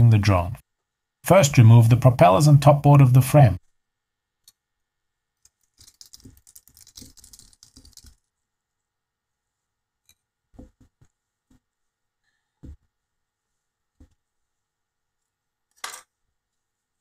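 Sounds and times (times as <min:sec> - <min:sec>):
rustling and clicking of plastic parts: 0:05.4 - 0:08.3.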